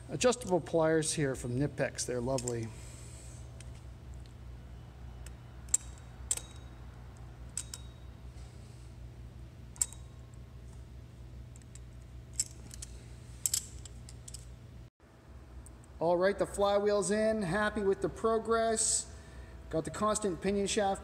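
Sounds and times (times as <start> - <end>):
steady low hum: 0.0 - 21.0
pliers clicking on metal: 2.3 - 2.6, 5.2 - 6.7, 7.5 - 8.0, 9.8 - 10.1, 11.6 - 14.5.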